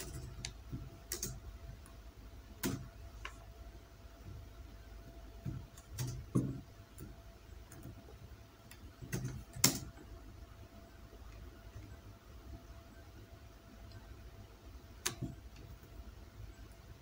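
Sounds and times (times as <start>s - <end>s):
keyboard typing clicks: 0.0s - 2.0s, 2.6s - 3.4s, 5.5s - 7.1s, 8.7s - 10.0s.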